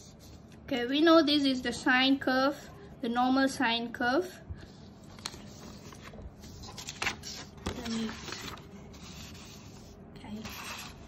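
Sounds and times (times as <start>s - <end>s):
paper sliding and rustling: 4.6s - 11.0s.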